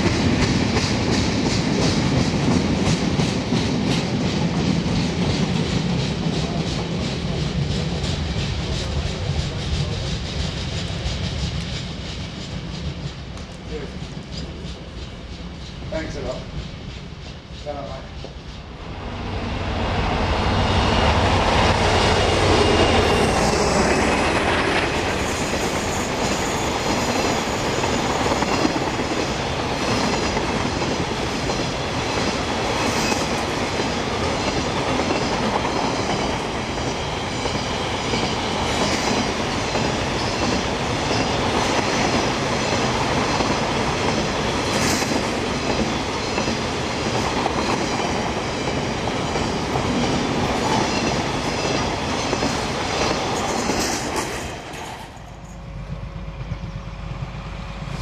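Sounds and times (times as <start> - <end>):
rail joint clicks: 0.0 - 18.8
train wheel clatter: 0.0 - 18.8, 21.2 - 57.2.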